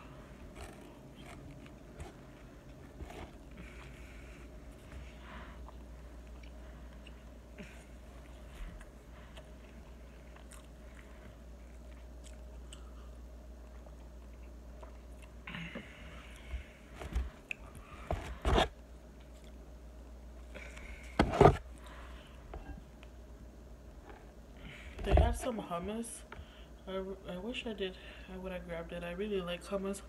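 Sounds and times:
quiet chewing: 0.0s - 16.6s, 19.1s - 19.6s.

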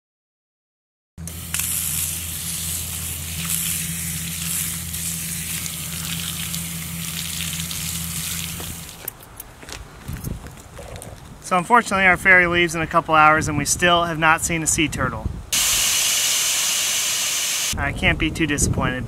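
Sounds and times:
low hum: 1.2s - 9.0s
water pouring and splashing: 1.3s - 9.1s.

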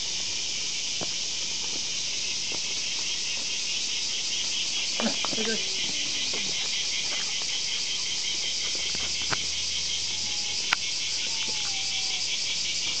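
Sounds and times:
insects chorus: 0.0s - 13.0s.

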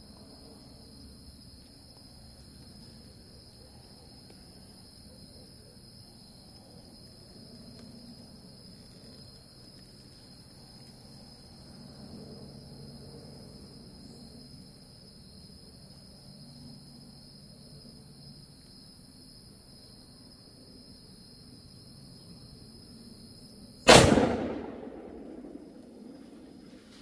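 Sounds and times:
insects chirping: 0.0s - 27.0s
rifle shot with echo: 23.9s - 26.8s.

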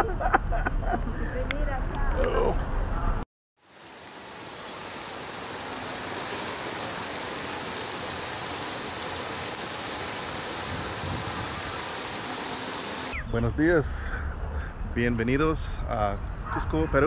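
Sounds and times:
fountain water splashing: 3.6s - 13.2s.

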